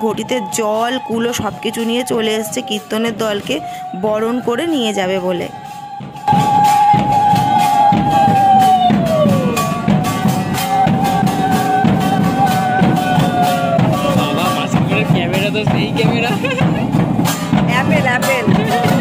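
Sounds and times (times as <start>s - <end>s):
drum beat: 0.0s - 19.0s
hand cymbals clashing: 5.6s - 19.0s
conch shell blown: 5.7s - 14.2s.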